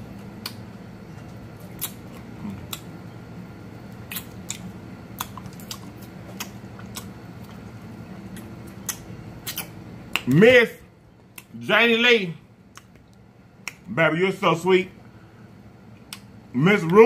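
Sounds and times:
steady low hum: 0:00.0 - 0:17.0
mouth gnawing and sucking bone: 0:00.3 - 0:03.1, 0:03.8 - 0:10.3.

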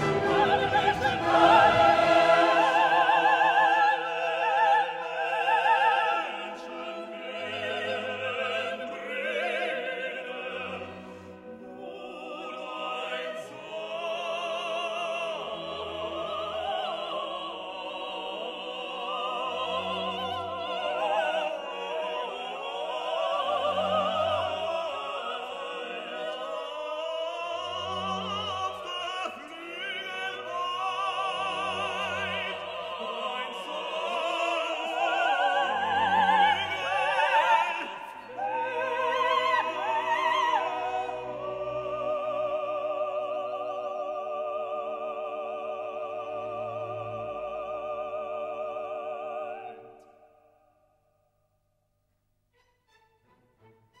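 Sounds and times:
orchestral accompaniment: 0:00.0 - 0:22.6, 0:52.6 - 0:54.0
operatic singing: 0:00.0 - 0:50.4.

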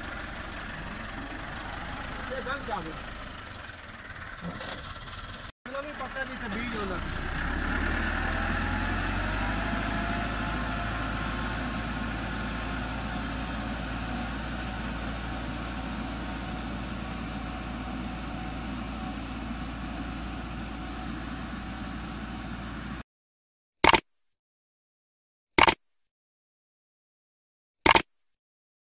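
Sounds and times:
tractor engine running under load: 0:00.0 - 0:23.0.

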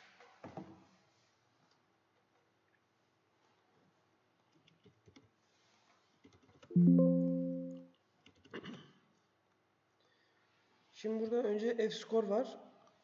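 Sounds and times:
computer alert chime: 0:06.8 - 0:07.8.

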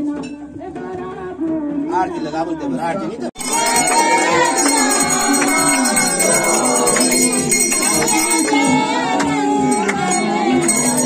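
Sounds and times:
bells ringing: 0:03.4 - 0:11.0.

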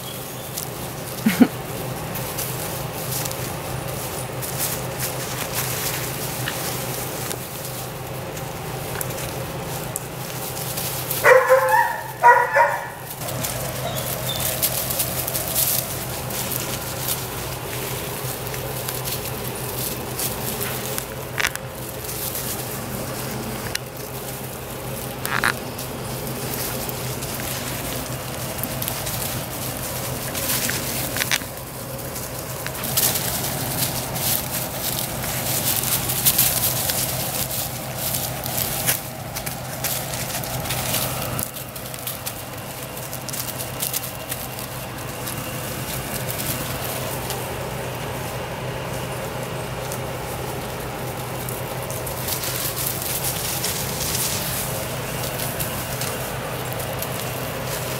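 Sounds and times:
rustling of dry leaves: 0:00.0 - 0:57.9
high puppy barks: 0:11.2 - 0:14.5.

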